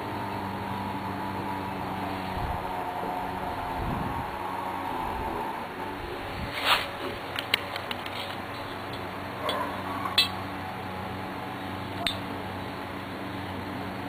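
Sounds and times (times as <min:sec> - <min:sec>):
steady low hum: 0:00.0 - 0:14.0
brief rustle: 0:06.5 - 0:08.7.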